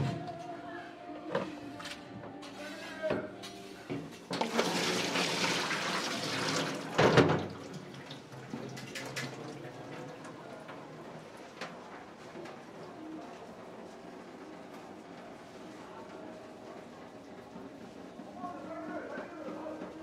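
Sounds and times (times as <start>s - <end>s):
tap water splashing into sink: 4.3s - 9.4s.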